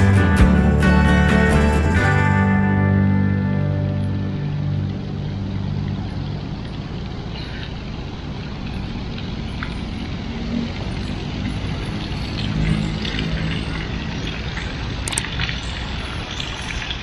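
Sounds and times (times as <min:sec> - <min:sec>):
road traffic rumble: 0:00.0 - 0:17.0
low hum: 0:00.1 - 0:08.9.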